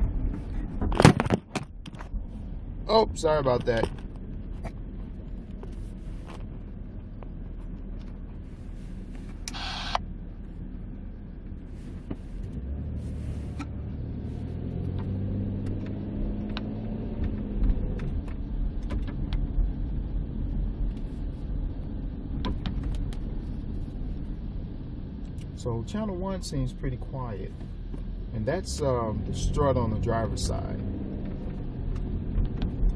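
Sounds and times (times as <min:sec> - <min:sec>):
low road rumble: 0:00.0 - 0:32.9.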